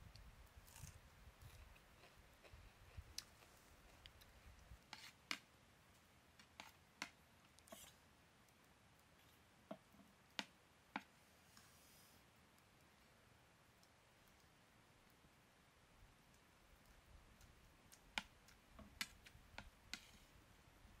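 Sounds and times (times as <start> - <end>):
faint clicks and light taps: 1.4 - 11.7, 13.7 - 15.3, 16.2 - 20.3.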